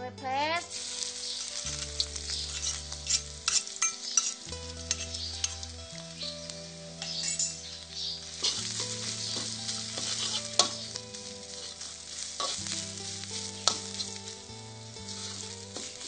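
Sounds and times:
curry paste sizzling in oil: 0:00.6 - 0:16.0
metal spatula scraping pan: 0:00.7 - 0:05.6, 0:07.0 - 0:14.3
spatula clinking against pan: 0:02.5 - 0:05.6.

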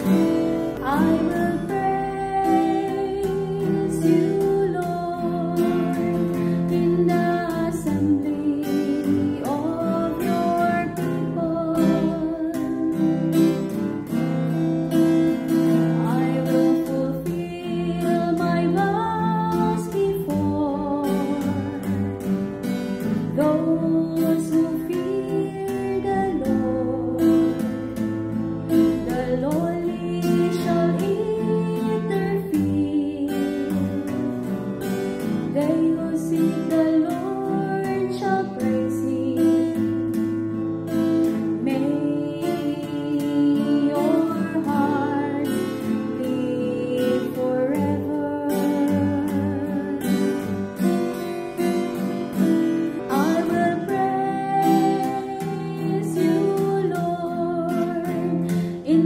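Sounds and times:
acoustic guitar: 0:00.0 - 0:59.0
person singing a psalm: 0:00.7 - 0:13.7, 0:35.4 - 0:39.8, 0:41.5 - 0:50.6, 0:53.1 - 0:59.0.

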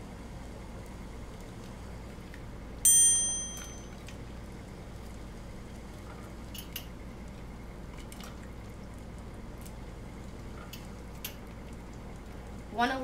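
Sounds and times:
bright bell-like chime: 0:02.9 - 0:03.9.

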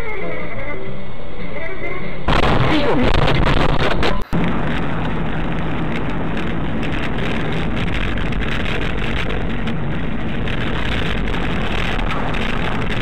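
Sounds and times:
car engine and tyre noise: 0:03.2 - 0:13.0.

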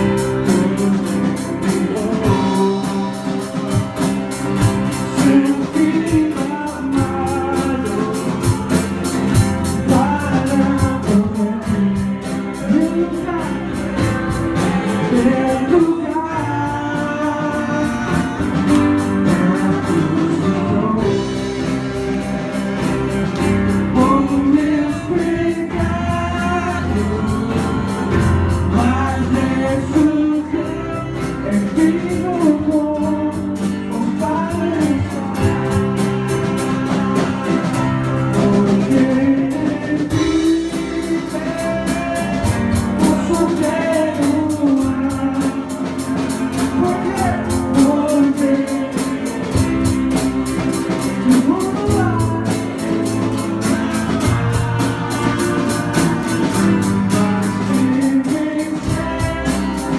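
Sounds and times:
acoustic guitar: 0:00.0 - 0:59.9
bass guitar: 0:00.0 - 0:59.9
drum kit: 0:00.0 - 0:59.9
keyboard: 0:00.0 - 0:59.9
man singing lead: 0:00.0 - 0:59.9
voices singing along: 0:00.0 - 0:59.9.

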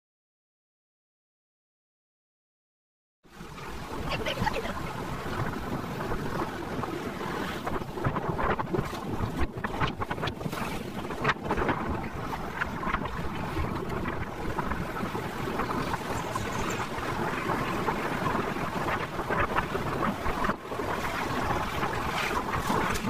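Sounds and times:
wind rushing over microphone: 0:03.3 - 0:23.0.

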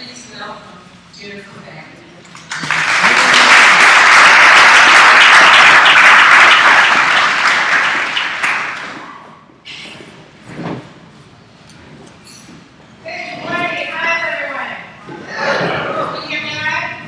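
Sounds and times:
audience applauding: 0:02.4 - 0:09.2.

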